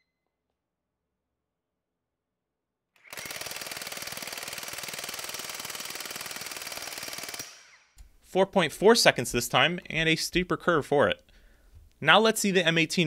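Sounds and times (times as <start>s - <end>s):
cordless impact wrench hammering: 3.0s - 8.1s.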